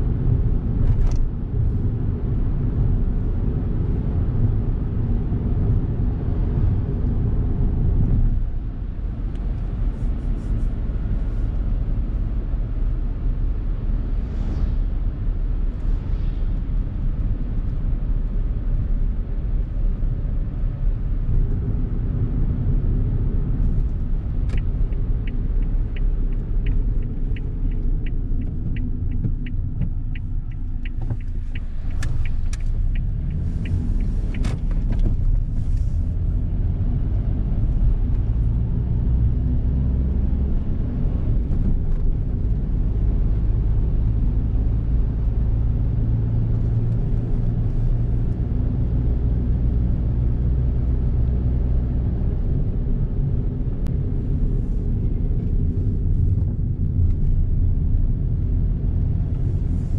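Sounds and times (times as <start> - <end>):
road and engine rumble in car cabin: 0.0 - 59.9
turn signal ticking: 23.8 - 35.9.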